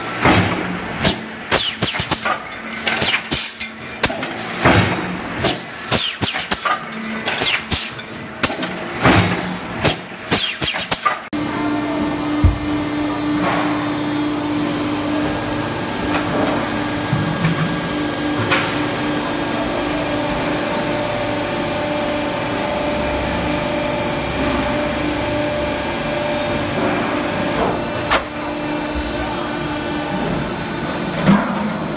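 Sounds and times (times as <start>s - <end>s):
stamping press motor hum: 0.0s - 11.3s.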